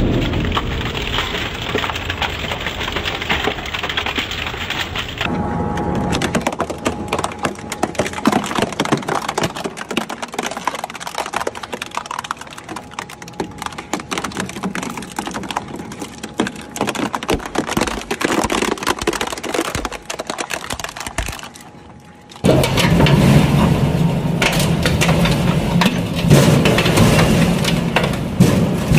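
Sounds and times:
shredder tearing plastic: 6.1s - 21.7s.

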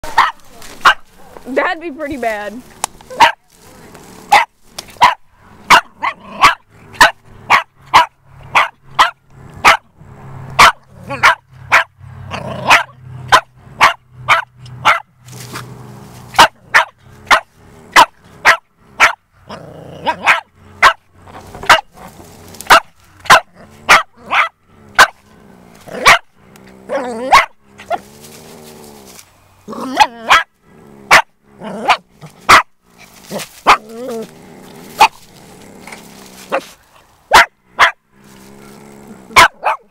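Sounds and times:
small dog barking sharply: 0.0s - 1.0s, 3.1s - 3.4s, 4.3s - 9.8s, 10.6s - 11.9s, 12.7s - 15.1s, 16.4s - 17.4s, 18.0s - 19.2s, 20.2s - 21.0s, 22.7s - 25.1s, 26.0s - 26.2s, 30.0s - 30.5s, 31.9s - 32.7s, 37.3s - 38.0s, 39.4s - 39.9s.

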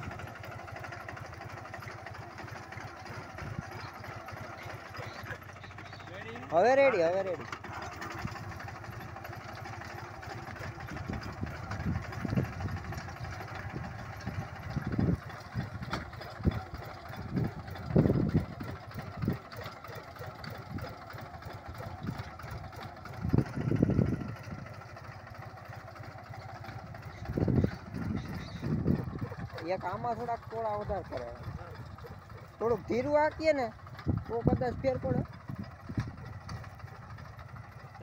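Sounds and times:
tractor engine running: 0.0s - 38.0s.

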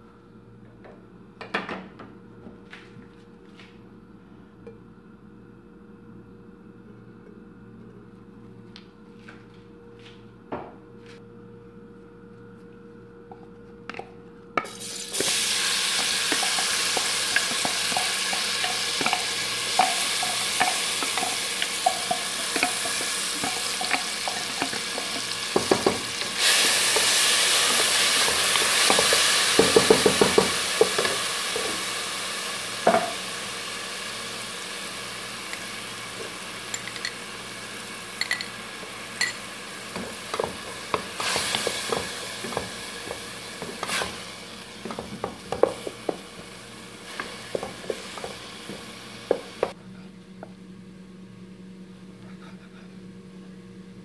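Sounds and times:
onions sizzling in hot oil: 14.7s - 49.8s.

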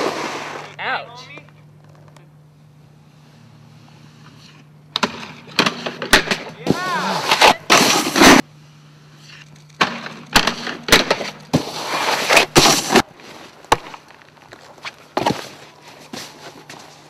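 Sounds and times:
snowboard scraping on icy snow: 0.0s - 0.7s, 6.7s - 8.4s, 11.5s - 13.5s.

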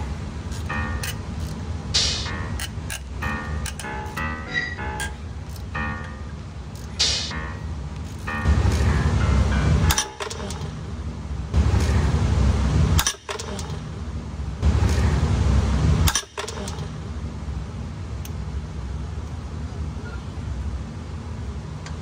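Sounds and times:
sharp ratchet click: 0.5s - 4.2s.

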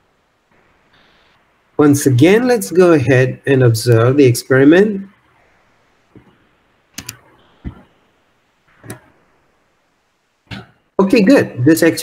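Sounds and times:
keyboard and mouse clicks: 7.0s - 7.9s, 8.8s - 9.1s.

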